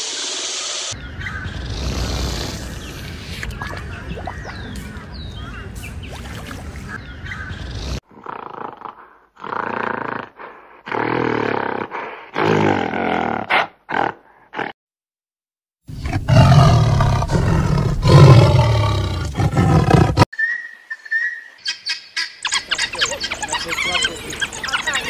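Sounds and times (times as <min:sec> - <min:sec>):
tiger growling roar: 0:01.6 - 0:03.1, 0:16.0 - 0:20.3.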